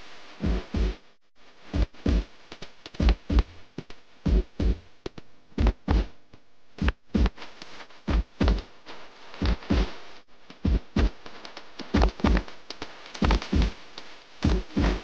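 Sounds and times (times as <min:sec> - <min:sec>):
heavy drum strokes: 0:00.4 - 0:01.0, 0:01.8 - 0:02.3, 0:14.5 - 0:15.0.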